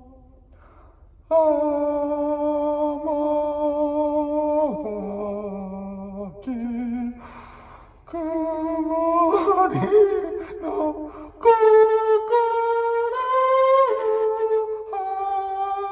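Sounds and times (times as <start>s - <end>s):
man breathing in: 0.5s - 1.2s, 7.2s - 8.1s
man singing into microphone: 1.3s - 7.4s, 8.1s - 15.9s.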